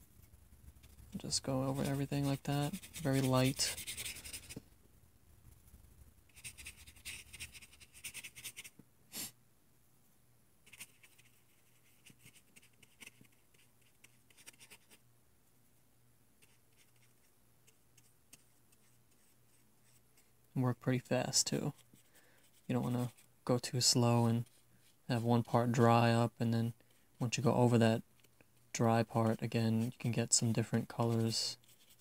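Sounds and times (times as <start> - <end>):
brush stroking paper: 0.1 - 4.6, 6.3 - 8.8, 10.6 - 15.0, 16.4 - 20.4, 21.2 - 26.4, 27.2 - 32.0.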